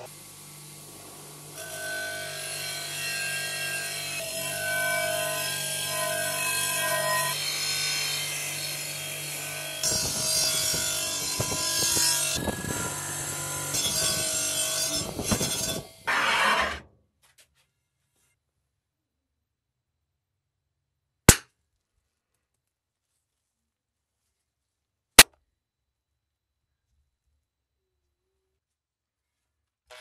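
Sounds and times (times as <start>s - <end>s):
bench grinder motor hum: 0.6s - 16.8s.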